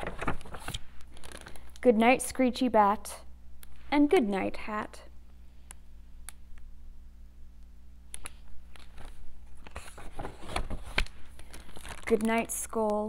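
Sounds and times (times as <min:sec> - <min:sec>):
paper page rustling: 0:00.0 - 0:01.7, 0:08.7 - 0:12.9
low steady hum: 0:00.0 - 0:13.0.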